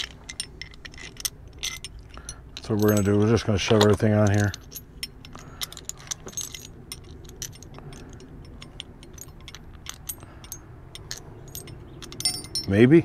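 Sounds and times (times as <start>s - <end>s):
metal hardware clinking: 0.0s - 13.0s.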